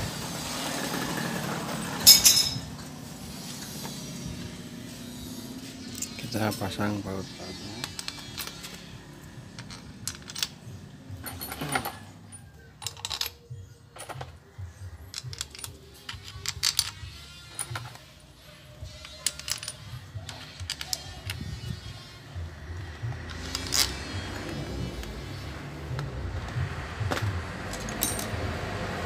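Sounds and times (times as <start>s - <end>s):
metal bolts clinking: 2.0s - 2.7s, 5.8s - 6.5s, 7.8s - 14.4s, 15.0s - 18.2s, 18.8s - 21.7s, 22.8s - 25.2s, 27.0s - 28.4s.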